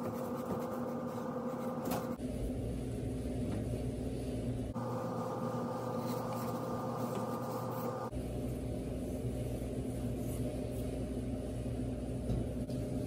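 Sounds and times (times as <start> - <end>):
paper towel rubbing inside metal bore: 0.0 - 1.8, 4.8 - 8.1.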